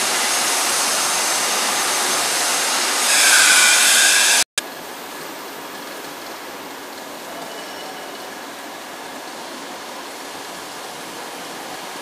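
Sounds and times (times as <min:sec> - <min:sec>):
plasma cutting torch hissing: 0:00.0 - 0:04.4.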